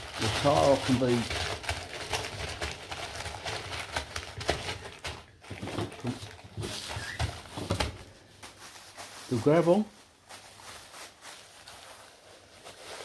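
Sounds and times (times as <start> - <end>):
gravel pebbles clicking and crunching: 0.0 - 7.2.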